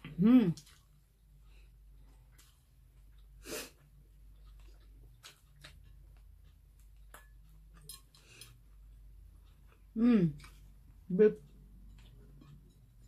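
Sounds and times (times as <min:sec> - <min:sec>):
person sniffing: 0:03.4 - 0:03.8.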